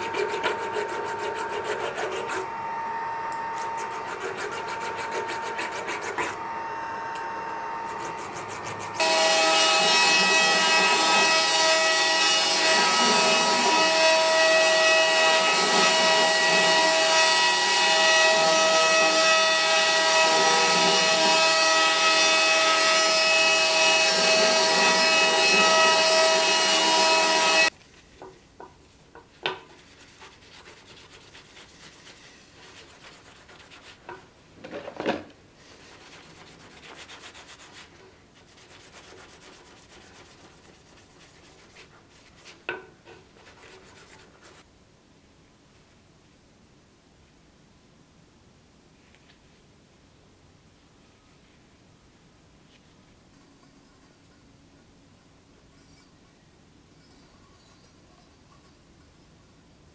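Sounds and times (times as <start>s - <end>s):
hand sanding metal: 0.0s - 2.5s, 3.6s - 6.4s, 7.9s - 11.7s, 28.8s - 34.2s, 35.6s - 42.7s, 43.3s - 44.6s.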